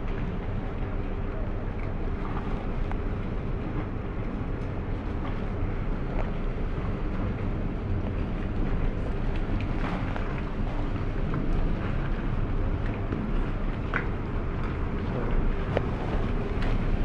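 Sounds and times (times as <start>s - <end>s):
boat engine droning: 0.0s - 17.0s
water noise: 0.0s - 17.0s
wind: 0.0s - 17.0s.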